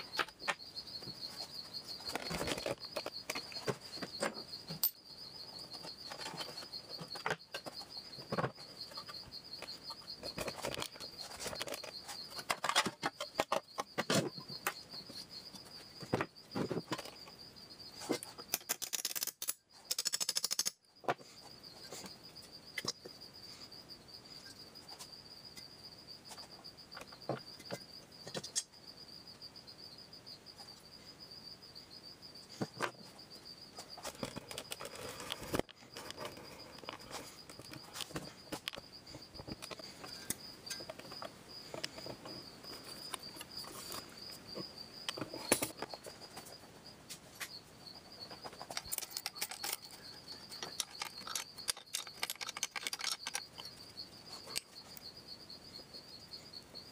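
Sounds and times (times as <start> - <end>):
wrench and bolts clinking: 50.6 - 53.6.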